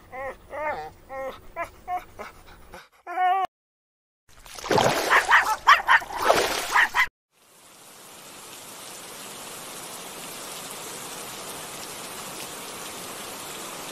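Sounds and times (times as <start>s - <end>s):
dog whimpering and yipping: 0.0s - 3.5s
shallow stream running: 4.3s - 13.9s.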